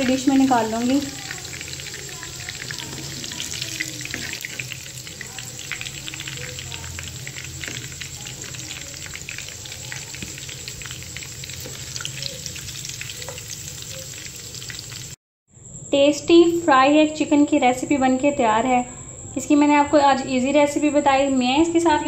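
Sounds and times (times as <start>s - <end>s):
chicken sizzling in hot oil: 0.0s - 15.2s.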